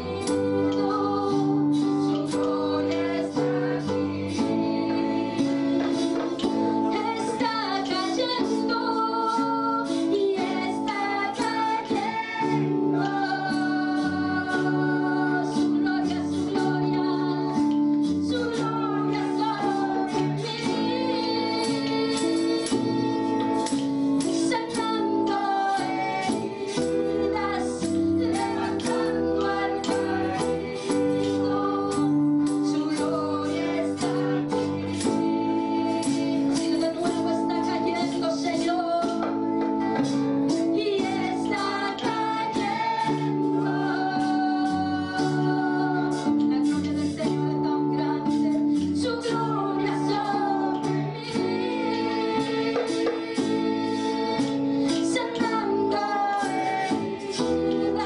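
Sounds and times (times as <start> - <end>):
electric bass: 0.0 - 7.5
guitar: 0.0 - 58.0
woman singing into a microphone: 0.0 - 58.0.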